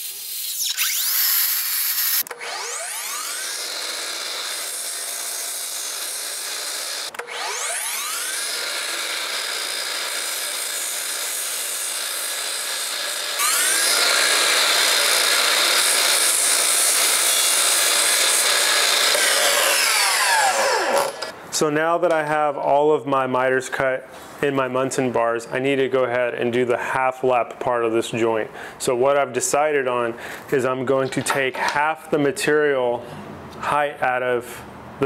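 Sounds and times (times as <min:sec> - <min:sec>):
miter saw cutting wood: 0:00.0 - 0:21.4.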